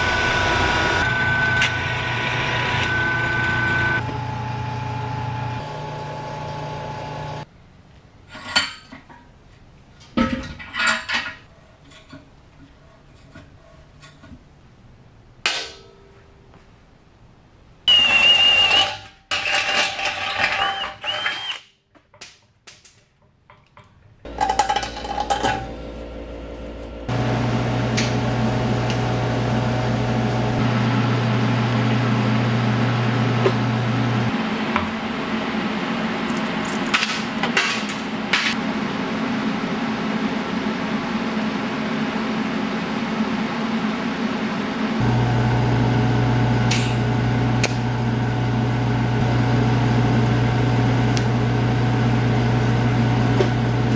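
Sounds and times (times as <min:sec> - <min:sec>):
shop tool noise bursts: 0:17.9 - 0:19.5, 0:20.1 - 0:21.7.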